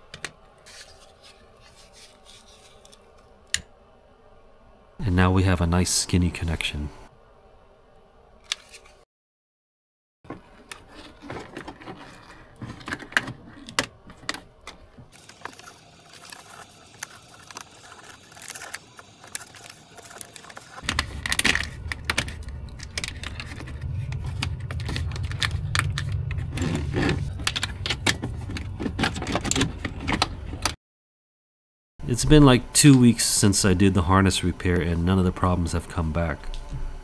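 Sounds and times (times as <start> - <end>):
steady low hum: 10.3 - 30.8, 32.0 - 37.0
plastic connectors clicking and rattling: 17.0 - 26.6.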